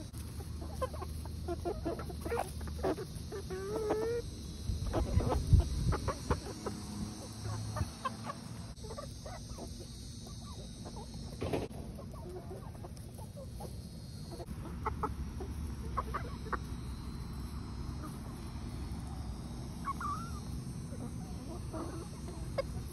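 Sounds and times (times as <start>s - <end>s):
hens clucking: 0.0s - 22.9s.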